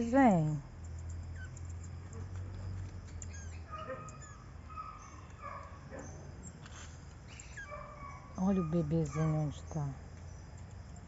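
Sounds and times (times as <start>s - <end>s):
monkeys chirping and whistling: 1.3s - 1.9s, 3.2s - 6.1s, 7.3s - 9.8s.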